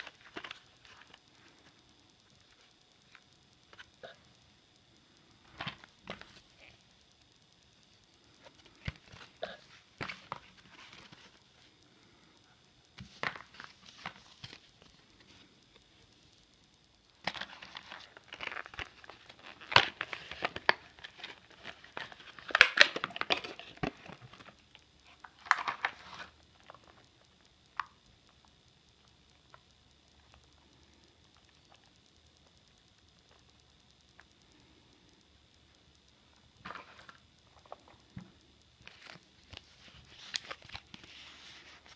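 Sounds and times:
plastic packaging crinkling: 17.2s - 27.0s.

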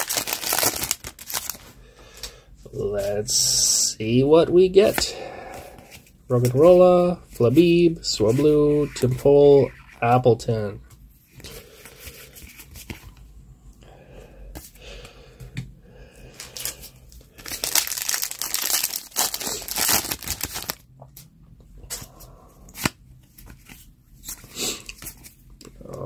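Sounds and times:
foil wrapper tearing and crinkling: 0.0s - 1.6s, 17.4s - 20.8s
cards rustling: 0.0s - 1.7s, 16.4s - 20.8s.

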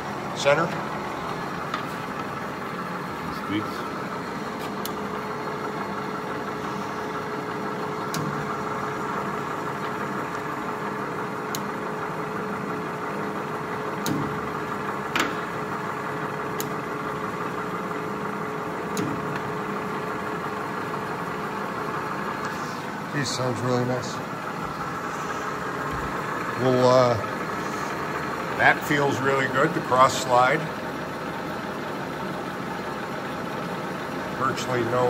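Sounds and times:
lathe motor hum and whine: 0.0s - 35.0s
lathe lever clicks: 8.0s - 8.5s, 11.5s - 11.8s, 14.0s - 14.4s, 15.1s - 15.5s, 16.5s - 16.8s, 18.9s - 19.5s.

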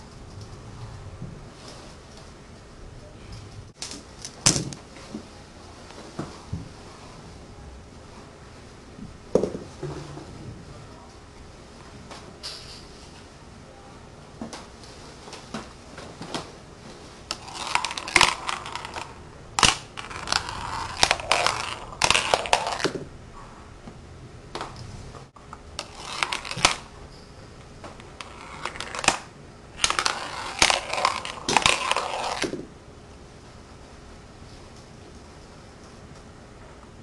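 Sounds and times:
marbles clattering down wooden ramps: 17.3s - 23.0s.

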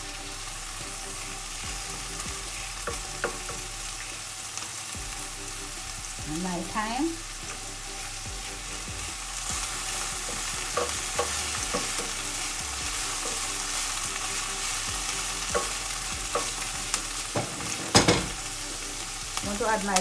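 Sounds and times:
vegetables sizzling in oil: 0.0s - 20.0s
wooden spatula knocking pan: 2.8s - 3.7s, 9.5s - 12.2s, 14.9s - 16.7s, 17.3s - 18.4s.

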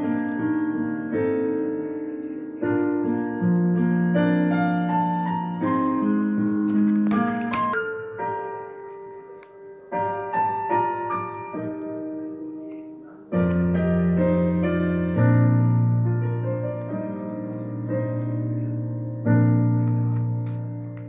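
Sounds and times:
piano melody: 0.0s - 21.0s.

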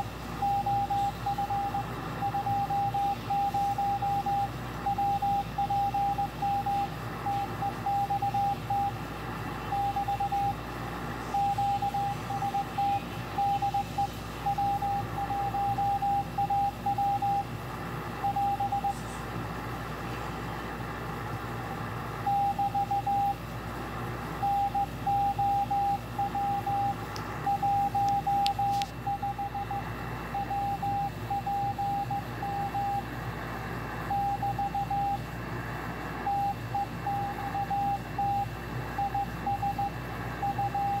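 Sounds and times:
morse code beeps: 0.0s - 17.5s, 18.2s - 19.0s, 22.2s - 23.5s, 24.4s - 33.1s, 34.1s - 35.2s, 36.3s - 41.0s
radio band hiss: 6.8s - 15.5s, 17.5s - 22.2s.

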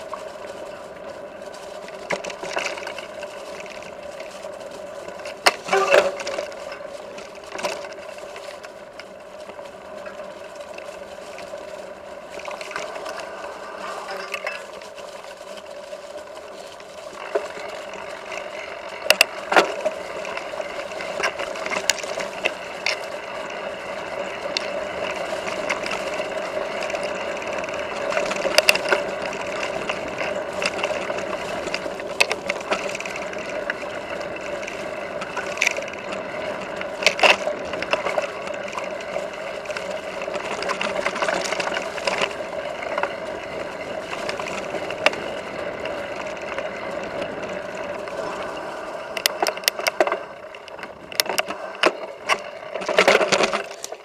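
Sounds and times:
bike rattling on dirt trail: 0.0s - 54.0s.

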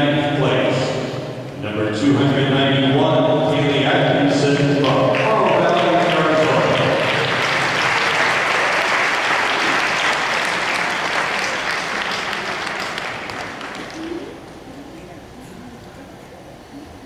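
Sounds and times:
audience clapping: 4.8s - 14.4s.

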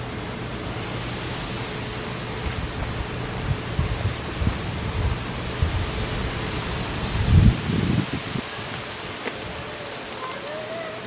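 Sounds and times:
low rumbles: 0.0s - 10.2s
steady background hiss: 0.0s - 11.0s.

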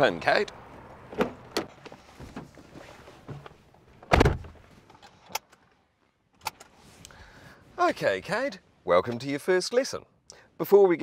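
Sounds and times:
rustling of person climbing in: 1.1s - 7.6s
car door shutting with thud: 4.1s - 4.6s.

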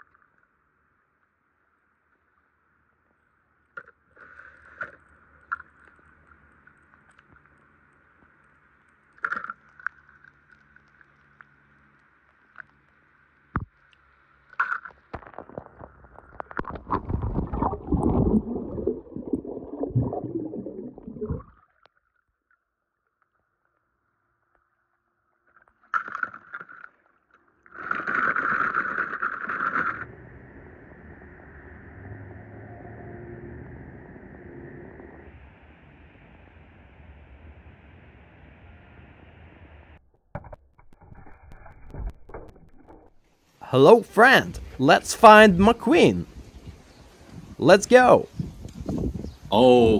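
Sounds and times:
water sloshing and splashing: 15.2s - 21.5s.

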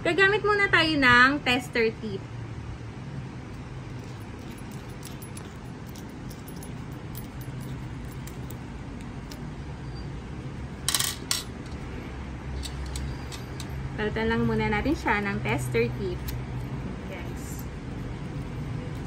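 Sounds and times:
steady low hum: 0.0s - 19.0s
small metal clicks and clinks: 3.5s - 9.5s, 12.6s - 13.8s.

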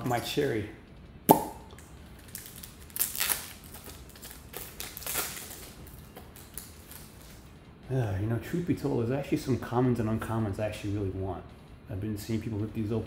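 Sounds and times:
wrapper popping open: 1.3s - 7.4s
wrapper tearing and crinkling: 2.2s - 7.5s.

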